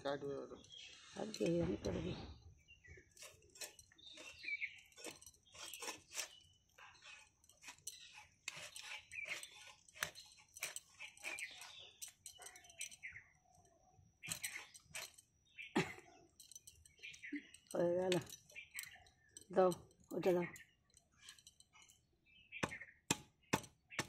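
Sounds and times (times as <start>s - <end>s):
blade cutting through fish scales: 3.1s - 12.8s.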